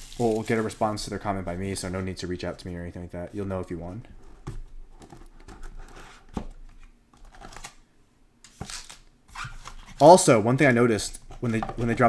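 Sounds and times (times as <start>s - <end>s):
cardboard rustling and scraping: 3.8s - 7.7s.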